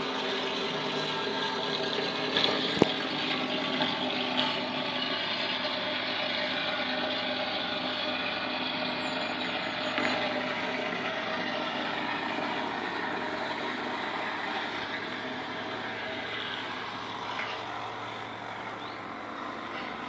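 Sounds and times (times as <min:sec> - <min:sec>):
barge diesel engine drone: 0:00.0 - 0:20.0.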